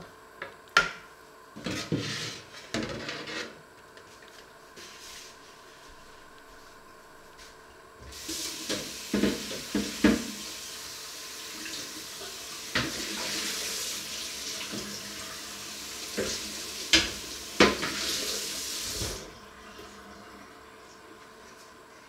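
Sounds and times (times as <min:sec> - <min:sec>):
water running from tap into sink: 0:08.1 - 0:20.1
dishes clattering in sink: 0:08.6 - 0:10.3, 0:16.2 - 0:18.1.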